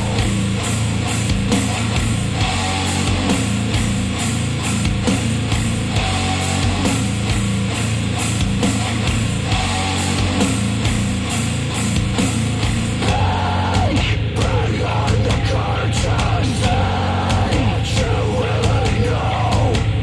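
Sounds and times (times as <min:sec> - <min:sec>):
loud rock music: 0:00.0 - 0:20.0
person singing: 0:13.0 - 0:20.0.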